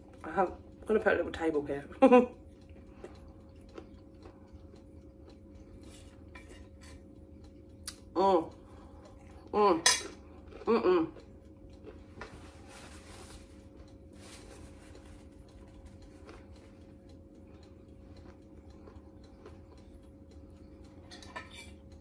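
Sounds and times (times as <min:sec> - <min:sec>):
soft chewing: 0:00.0 - 0:22.0
person humming mmm: 0:10.5 - 0:11.3.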